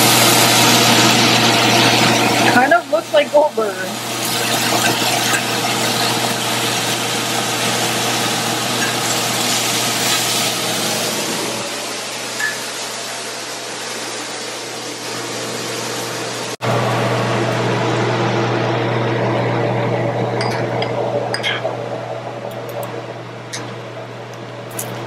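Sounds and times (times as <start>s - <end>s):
patties sizzling in a skillet: 0.0s - 16.5s
low hum: 16.6s - 24.8s.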